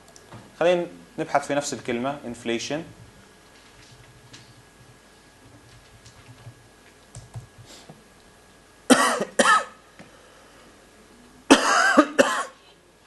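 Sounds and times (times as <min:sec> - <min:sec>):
person coughing: 0:08.9 - 0:09.8, 0:11.5 - 0:12.6.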